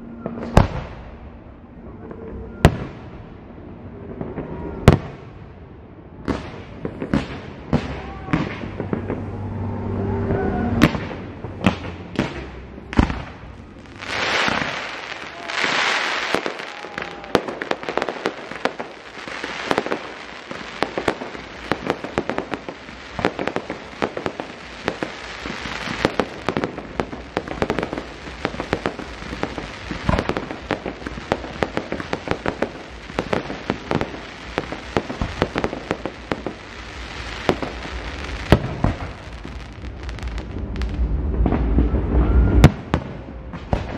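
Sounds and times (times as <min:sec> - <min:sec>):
fireworks crackling and popping: 0:00.0 - 0:03.2, 0:06.2 - 0:10.0, 0:10.8 - 0:43.9
fireworks hissing: 0:12.3 - 0:41.8
firework shells bursting: 0:13.0 - 0:41.8.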